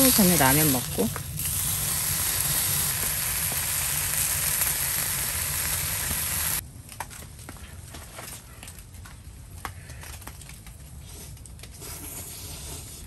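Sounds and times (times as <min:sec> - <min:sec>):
meat sizzling in skillet: 0:00.0 - 0:06.6.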